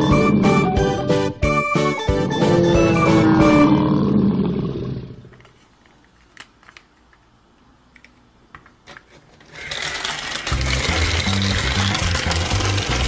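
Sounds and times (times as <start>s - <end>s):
background music: 0.0s - 3.8s
loud even noise: 2.2s - 5.0s.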